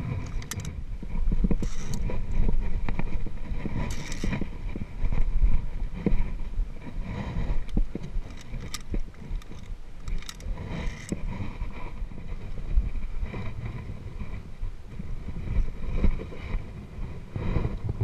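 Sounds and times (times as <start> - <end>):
wind buffeting microphone: 0.0 - 18.0
metallic carabiner clicks: 0.2 - 0.8, 1.6 - 2.1, 3.8 - 4.4, 7.7 - 11.2.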